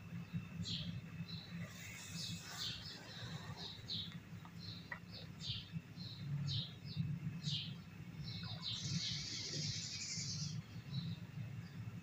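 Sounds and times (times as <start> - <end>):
small birds chirping: 0.0 - 12.0
steady low hum: 0.0 - 12.0.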